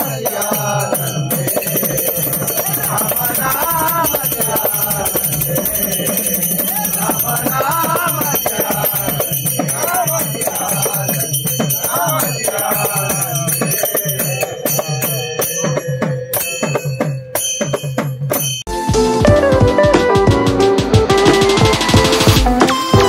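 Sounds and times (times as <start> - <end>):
men singing devotional song: 0.0 - 17.4
hand cymbals ringing: 0.0 - 18.7.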